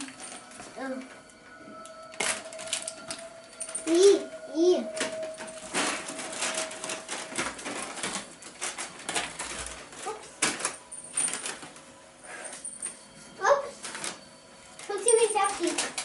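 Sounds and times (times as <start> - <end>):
sweet wrappers crinkling: 0.0 - 13.0, 13.6 - 16.0
small clicks and clatters: 14.8 - 16.0.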